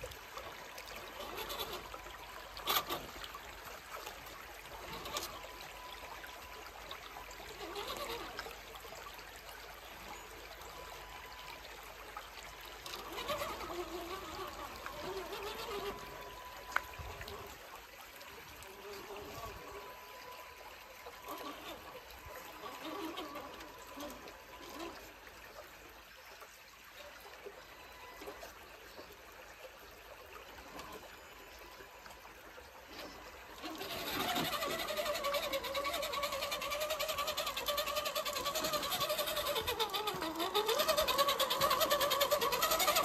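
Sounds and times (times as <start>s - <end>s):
faint high whine: 0.0s - 36.1s
creek water trickling over stones: 0.0s - 43.0s.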